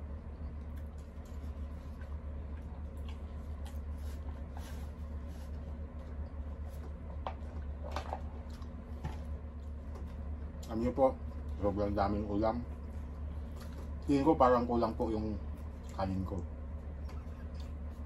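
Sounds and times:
low hum: 0.0s - 18.0s
chewing and lip smacks: 0.4s - 4.4s, 8.4s - 8.8s, 15.5s - 16.0s, 16.9s - 18.0s.

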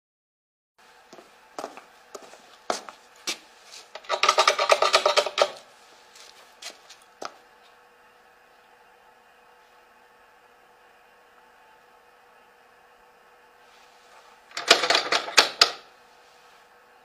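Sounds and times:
low steady hum: 0.8s - 17.0s
sharp wooden knocks and clicks: 4.0s - 5.6s.

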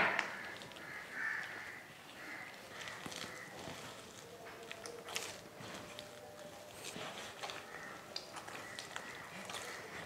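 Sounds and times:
hand kneading sticky dough: 0.0s - 10.0s.

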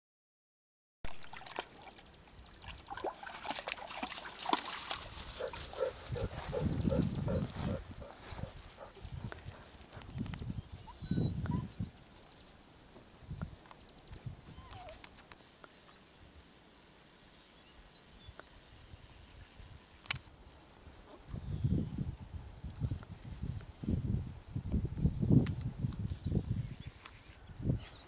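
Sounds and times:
rustling in grass: 3.0s - 11.0s, 11.8s - 24.6s
dogs panting and snuffling: 3.7s - 13.0s.

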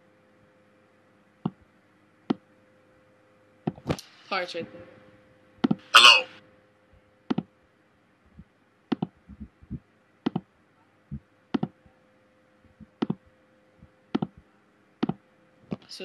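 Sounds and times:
faint steady hum: 0.0s - 16.0s
computer mouse clicks: 8.9s - 9.5s, 10.2s - 10.5s, 11.5s - 11.8s, 12.9s - 13.2s, 14.1s - 14.4s, 15.0s - 15.2s.

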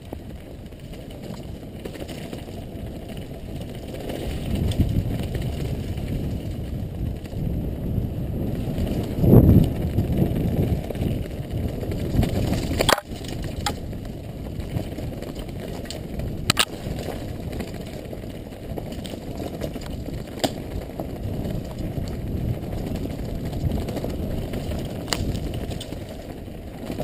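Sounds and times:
tyres rumbling on gravel trail: 0.0s - 27.0s
wind on camera: 0.0s - 27.0s
bike clacking over bumps: 8.6s - 27.0s.

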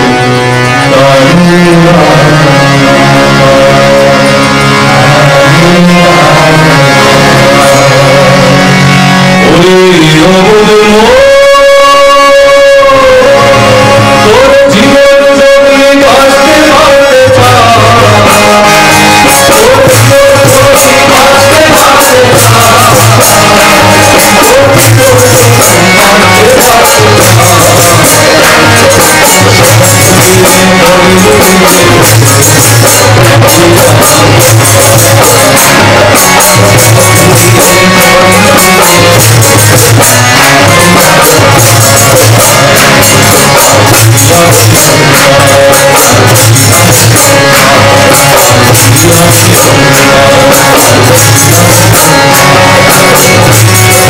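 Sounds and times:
harmoniums: 0.0s - 54.0s
group singing: 16.0s - 54.0s.

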